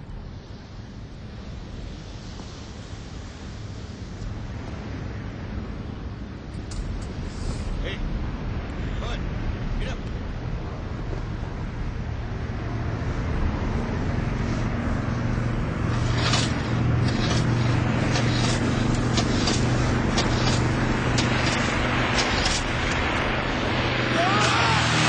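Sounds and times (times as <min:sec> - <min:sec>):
propeller engines running: 0:00.0 - 0:25.0
spray hissing off hull: 0:00.2 - 0:05.2, 0:07.1 - 0:07.8, 0:12.8 - 0:25.0
sharp cracks: 0:15.9 - 0:23.3, 0:24.1 - 0:25.0.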